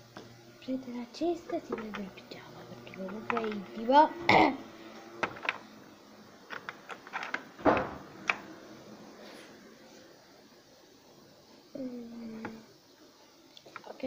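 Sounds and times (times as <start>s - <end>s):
plastic toys clicking and knocking: 1.5s - 2.2s, 3.0s - 3.8s, 5.2s - 5.6s, 6.5s - 8.4s
plastic toys falling: 1.6s - 2.1s, 3.0s - 3.6s, 5.2s - 5.6s, 6.5s - 8.4s.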